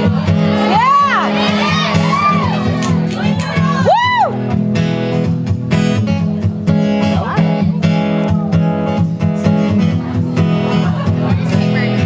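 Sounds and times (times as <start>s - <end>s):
acoustic guitar strumming: 0.0s - 12.0s
audience whoop: 0.7s - 4.4s.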